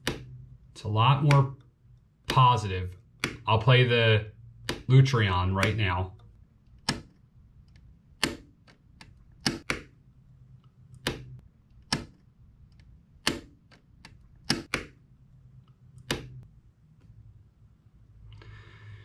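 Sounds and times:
dimmer switch clicking: 0:04.6 - 0:04.9, 0:06.8 - 0:09.9, 0:10.9 - 0:15.0, 0:16.0 - 0:16.5.

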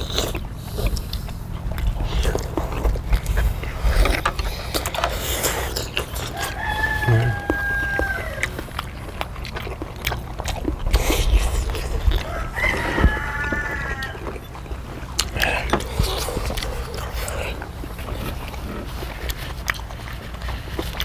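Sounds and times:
people chewing and eating: 0:00.0 - 0:21.0
rooster crowing: 0:06.2 - 0:08.6, 0:12.2 - 0:14.4.

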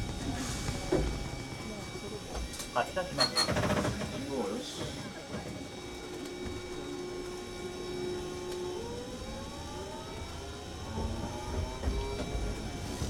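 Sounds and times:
wheels rumbling on rails: 0:00.0 - 0:02.7
electric traction motor whine: 0:00.0 - 0:13.0.

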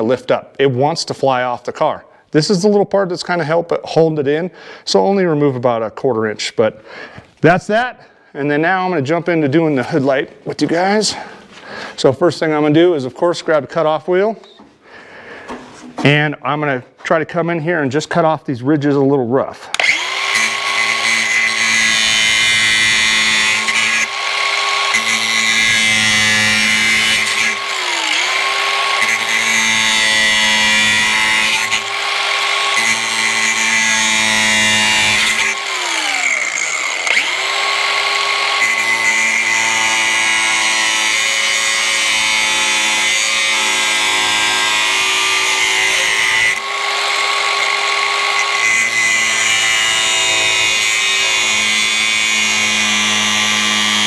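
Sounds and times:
angle grinder cutting plastic: 0:19.7 - 0:54.0.

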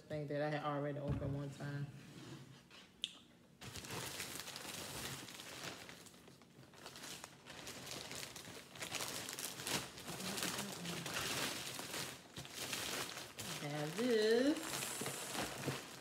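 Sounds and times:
plastic mailer crinkling: 0:03.6 - 0:16.0.

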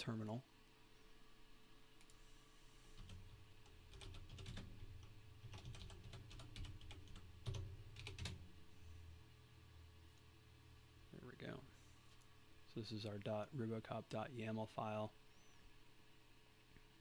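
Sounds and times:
typing on computer keyboard: 0:03.0 - 0:08.4.

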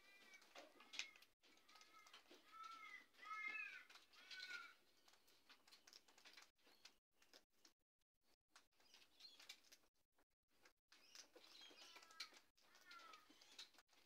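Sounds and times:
bird chirps: 0:10.9 - 0:13.8.

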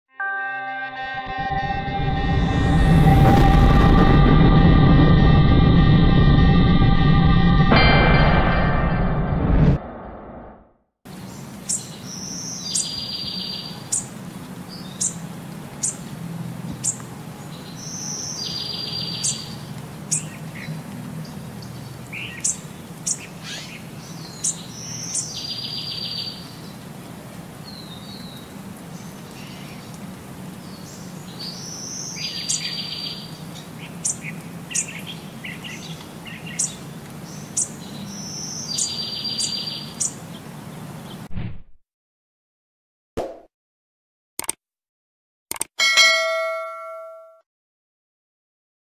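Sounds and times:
small birds chirping and singing: 0:11.1 - 0:26.9, 0:27.6 - 0:41.2.

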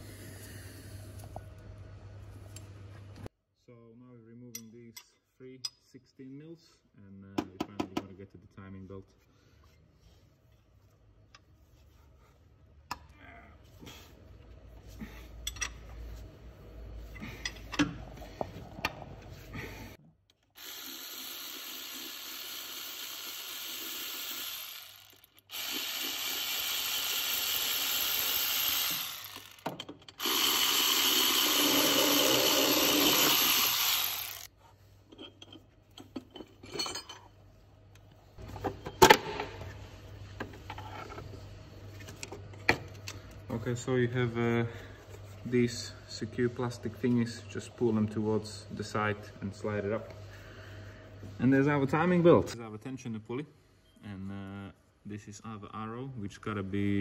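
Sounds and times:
cordless power ratchet running: 0:20.6 - 0:29.6, 0:30.2 - 0:34.5.

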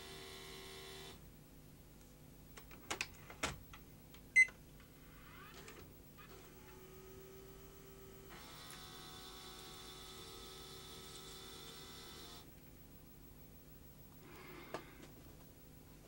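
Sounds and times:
motor whirring faintly: 0:05.0 - 0:15.1
high motor whine: 0:05.1 - 0:16.0.

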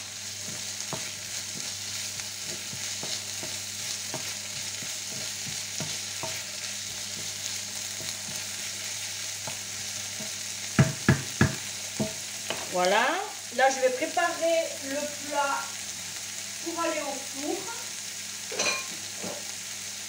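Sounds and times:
food sizzling in a frying pan: 0:00.0 - 0:20.0
spatula knocking on pan: 0:00.5 - 0:01.8, 0:02.4 - 0:08.6, 0:09.3 - 0:12.7
wooden spatula scraping pan: 0:02.4 - 0:10.4.

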